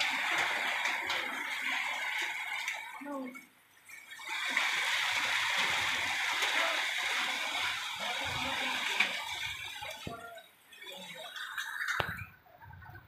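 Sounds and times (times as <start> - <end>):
heavy rain on grass: 0.0 - 3.2, 4.2 - 10.2.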